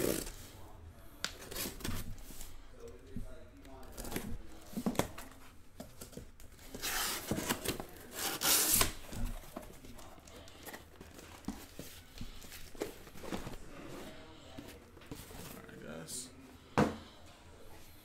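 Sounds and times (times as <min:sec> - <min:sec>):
boxes being handled: 0:01.2 - 0:17.2
tape and cardboard tearing: 0:06.7 - 0:09.1.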